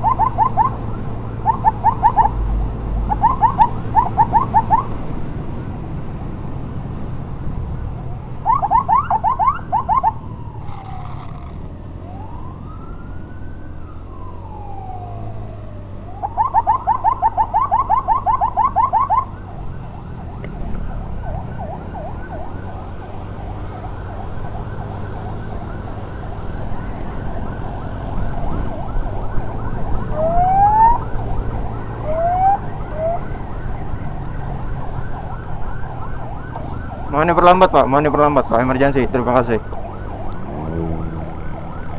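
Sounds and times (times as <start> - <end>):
electronic emergency siren: 0.0 - 5.9, 7.7 - 41.9
road noise: 0.0 - 41.9
motorcycle engine: 10.4 - 13.6, 19.4 - 37.2, 39.6 - 41.9.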